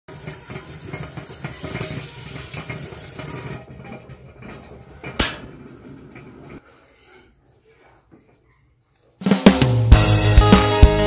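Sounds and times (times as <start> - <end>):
tap water running into metal pot: 0.1 - 3.6.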